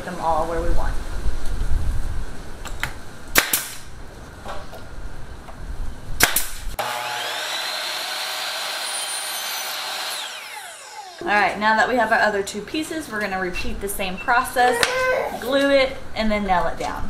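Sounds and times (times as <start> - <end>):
nailer sharp shots: 3.4 - 3.9, 6.2 - 6.6.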